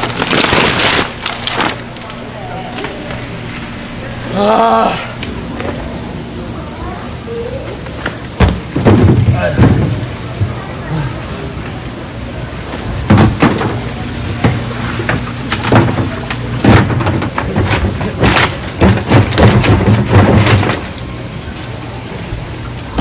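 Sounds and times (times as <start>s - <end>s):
low hum: 0.0s - 18.6s
hard objects knocking and clattering: 8.4s - 10.6s, 13.1s - 20.9s.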